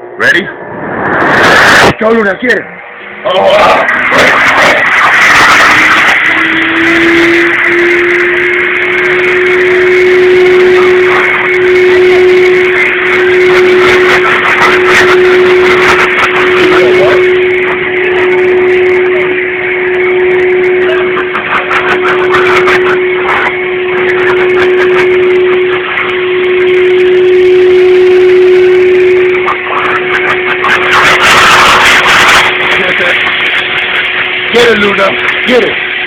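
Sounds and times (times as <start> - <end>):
blow dryer running: 0.0 - 36.0.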